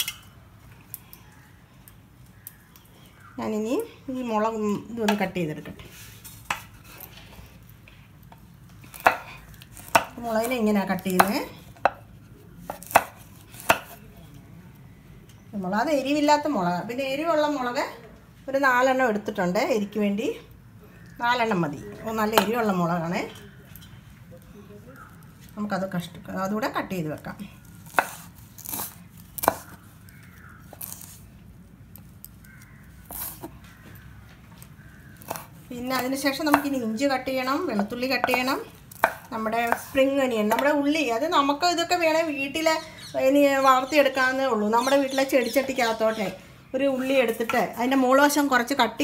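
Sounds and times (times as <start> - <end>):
knife chopping on wooden board: 12.6 - 14.0, 27.9 - 29.8, 38.2 - 39.9.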